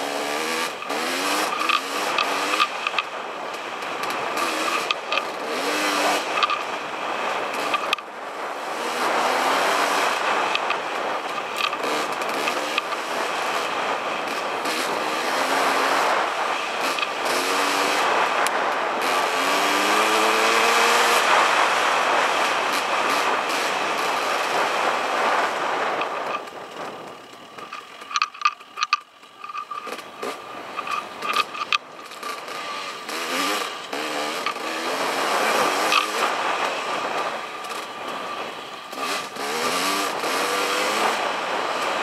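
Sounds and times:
dirt bike engine revving: 0:00.0 - 0:42.0
wind rush on microphone: 0:00.3 - 0:28.9, 0:29.8 - 0:42.0
sharp clicks: 0:00.7 - 0:05.4, 0:26.0 - 0:32.6.

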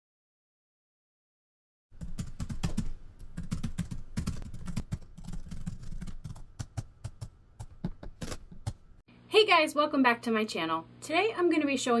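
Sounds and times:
keyboard typing: 0:02.0 - 0:08.8.

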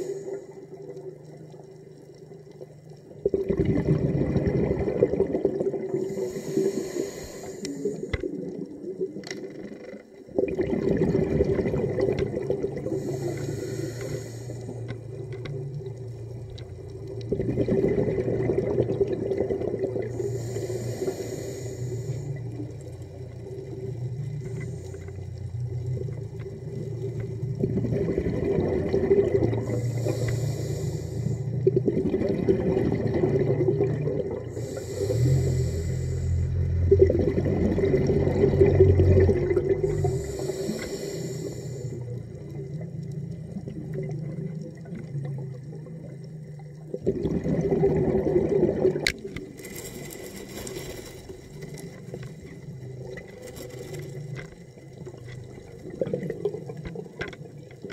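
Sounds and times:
regulator breathing hiss: 0:00.0 - 0:00.7, 0:06.0 - 0:08.2, 0:12.8 - 0:14.9, 0:20.1 - 0:22.6, 0:29.6 - 0:31.6, 0:34.4 - 0:36.7, 0:39.8 - 0:42.4
bubbling rumble: 0:00.0 - 0:06.8, 0:07.8 - 0:57.9.

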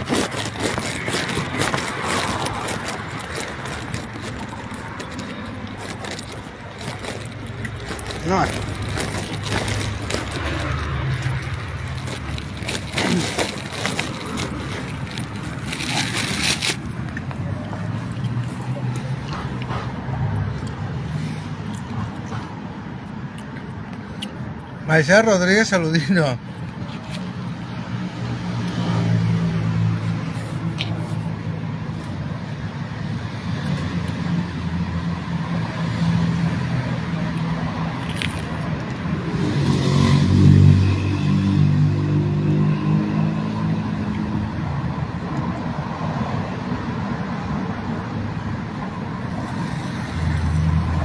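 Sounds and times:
scratchy rustles on microphone: 0:00.0 - 0:17.4
street traffic rumbling: 0:00.0 - 0:51.0
vehicle engine humming: 0:00.0 - 0:51.0.

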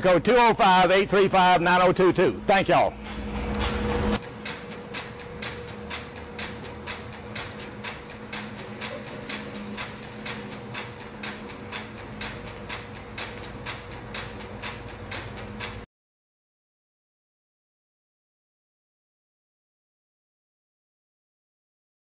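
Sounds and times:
machine humming: 0:00.0 - 0:15.9
machine clicking: 0:04.2 - 0:15.8.

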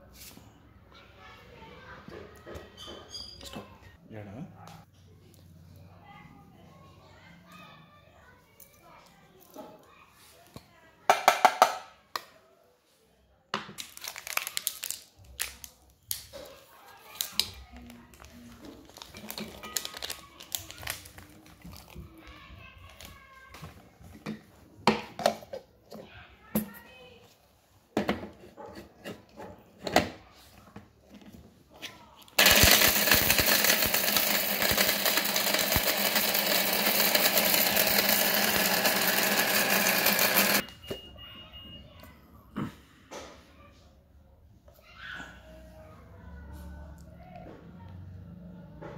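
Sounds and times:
plastic packet crinkling: 0:13.8 - 0:15.9, 0:17.0 - 0:22.0
mixer grinder whirring: 0:32.4 - 0:40.6.

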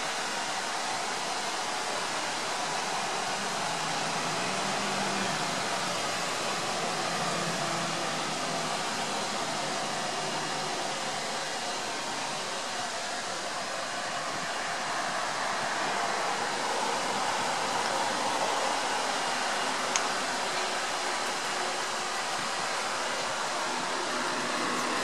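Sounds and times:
light rain hissing: 0:00.0 - 0:25.0.

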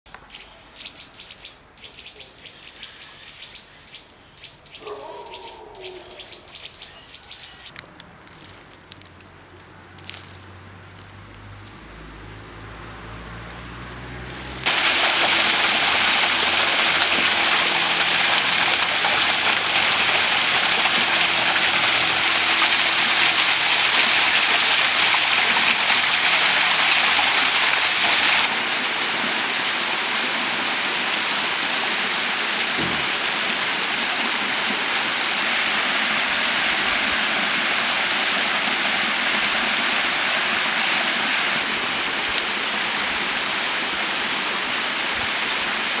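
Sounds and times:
waterfall splashing into pool: 0:14.2 - 0:46.0.

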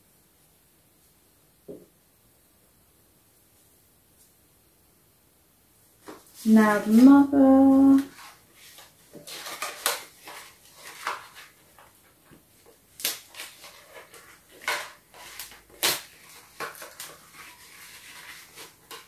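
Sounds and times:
toy packaging crinkling: 0:07.9 - 0:11.6.

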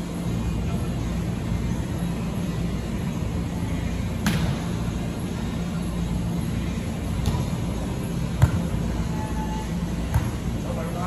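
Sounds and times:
volleyball struck by hand: 0:04.2 - 0:04.6, 0:08.4 - 0:08.7, 0:10.1 - 0:10.4.

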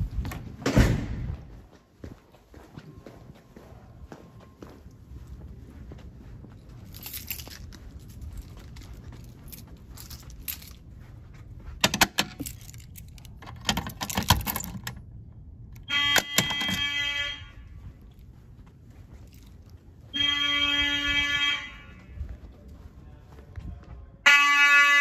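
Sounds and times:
keys jangling: 0:06.7 - 0:15.1, 0:19.0 - 0:19.8
fire alarm horn blasts: 0:15.8 - 0:18.1, 0:20.1 - 0:22.4, 0:24.2 - 0:25.0.

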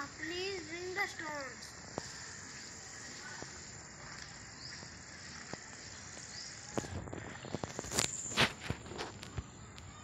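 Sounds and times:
high insect buzz: 0:00.0 - 0:08.7
footsteps splashing through mud: 0:01.9 - 0:09.4.

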